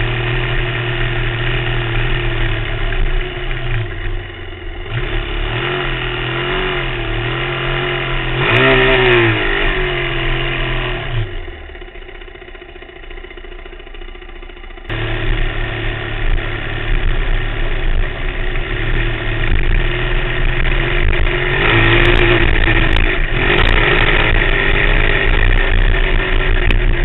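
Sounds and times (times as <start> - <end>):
off-road vehicle engine revving: 0.0 - 13.8, 14.4 - 27.0.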